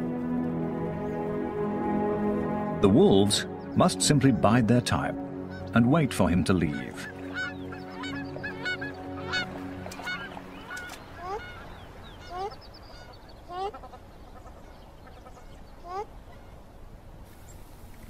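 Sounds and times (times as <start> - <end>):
soft sustained music tones: 0.0 - 16.9
geese honking: 5.4 - 16.6.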